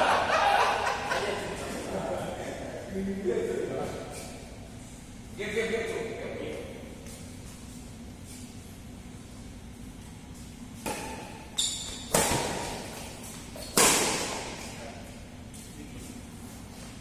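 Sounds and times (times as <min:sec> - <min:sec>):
rackets hitting shuttlecock: 0:10.8 - 0:14.8.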